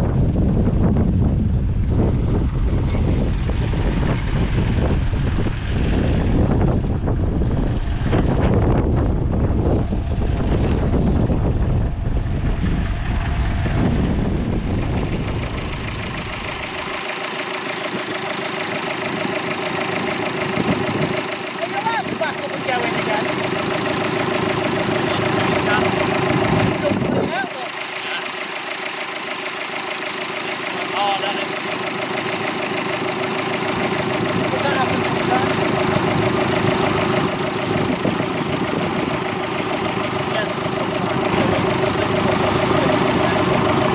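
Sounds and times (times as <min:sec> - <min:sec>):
wind buffeting microphone: 0:00.0 - 0:23.8, 0:25.7 - 0:27.5, 0:33.3 - 0:40.2
tractor engine running: 0:00.0 - 0:43.9.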